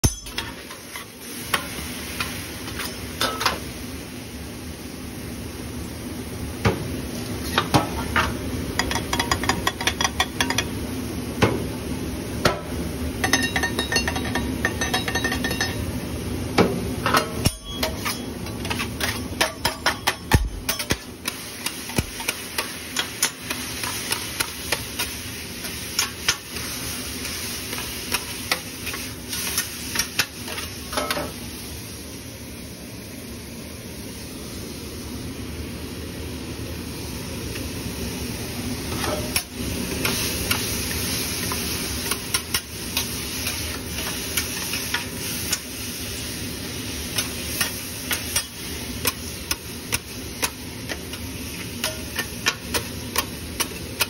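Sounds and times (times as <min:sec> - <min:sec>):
food sizzling: 0:00.0 - 0:54.0
metal spatulas scraping griddle: 0:17.1 - 0:25.1.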